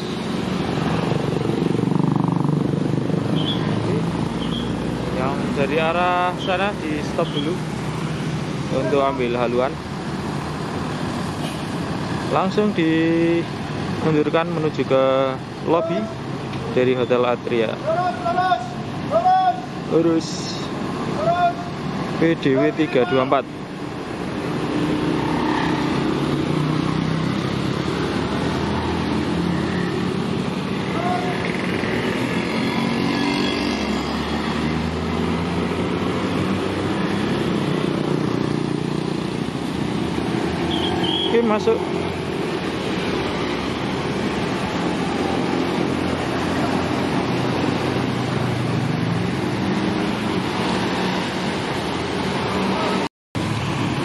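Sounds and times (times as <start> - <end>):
tyres hissing on wet road: 10.6 - 12.2, 39.3 - 54.0.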